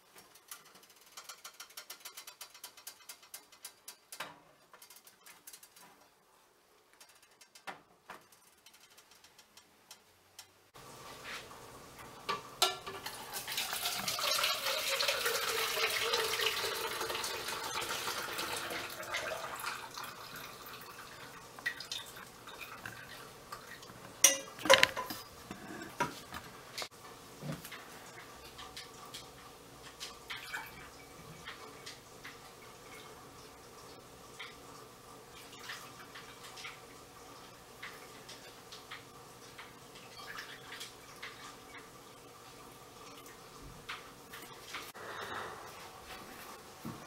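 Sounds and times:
liquid splashing pour: 0:13.0 - 0:23.7
pot and strainer clinking: 0:24.2 - 0:26.1.

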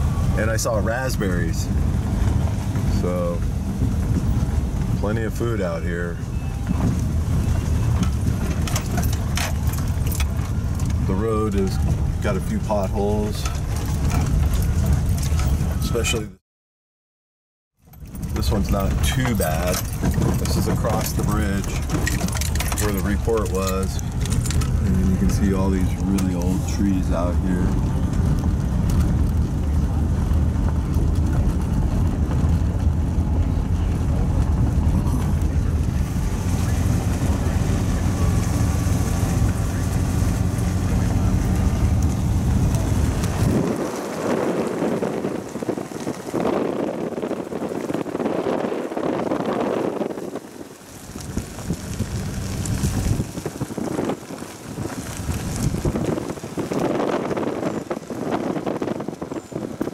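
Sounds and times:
wind buffeting microphone: 0:00.0 - 0:16.1, 0:18.0 - 0:59.9
vehicle driving on gravel: 0:00.0 - 0:16.4, 0:17.8 - 0:59.9
stones ticking: 0:50.9 - 0:59.9.

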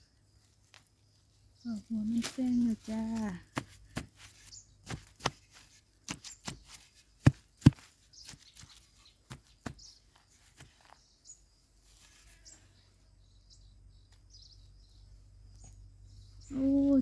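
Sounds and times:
digging tool thudding into soil: 0:03.4 - 0:08.7
faint bird chirps: 0:04.4 - 0:04.9, 0:08.0 - 0:17.0.

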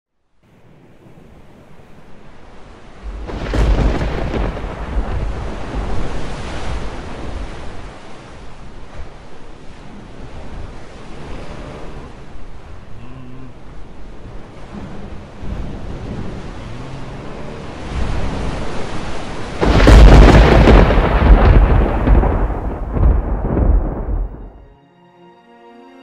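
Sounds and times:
wind: 0:00.1 - 0:25.3
rain: 0:00.4 - 0:24.6
rolling thunder rumble: 0:00.5 - 0:10.9, 0:14.0 - 0:24.6
thunderclap: 0:03.0 - 0:09.3, 0:14.7 - 0:24.6.

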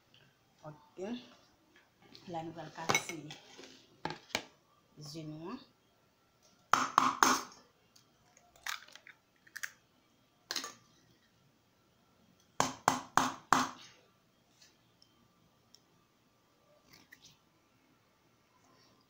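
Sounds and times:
eggshells being cracked: 0:08.5 - 0:09.8.

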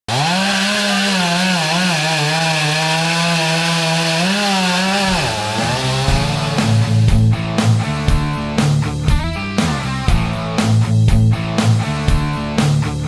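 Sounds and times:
chainsaw running at high revs: 0:00.1 - 0:09.0.

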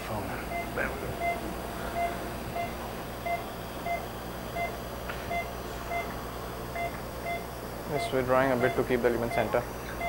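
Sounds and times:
low room hum: 0:00.0 - 0:10.0
pulse oximeter beeping: 0:00.5 - 0:07.5.

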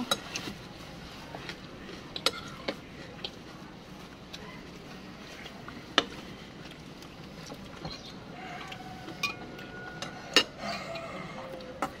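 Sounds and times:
steady background hum: 0:00.0 - 0:12.0
cutlery clinking on ceramic bowls: 0:09.2 - 0:11.1.

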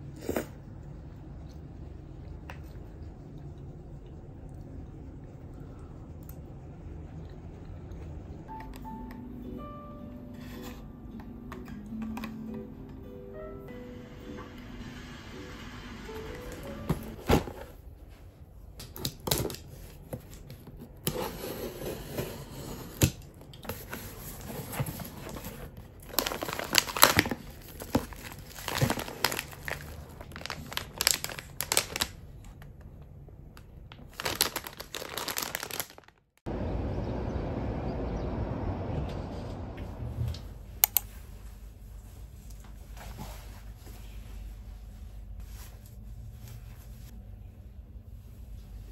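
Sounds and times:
cardboard and tape tearing: 0:23.8 - 0:32.1, 0:34.1 - 0:36.2
plastic packaging crinkling: 0:23.8 - 0:32.7, 0:33.6 - 0:36.4.

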